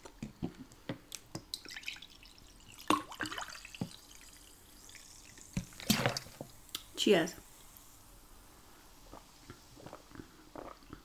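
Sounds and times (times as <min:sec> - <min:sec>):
liquid drips and splashes: 0:01.1 - 0:06.9.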